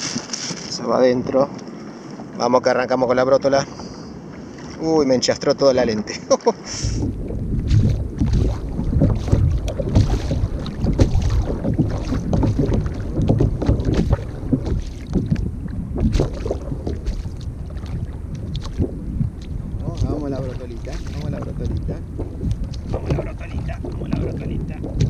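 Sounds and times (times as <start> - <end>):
water lapping at hull: 0.0 - 25.0
wind buffeting microphone: 6.8 - 25.0
small knocks and splashes: 7.0 - 25.0.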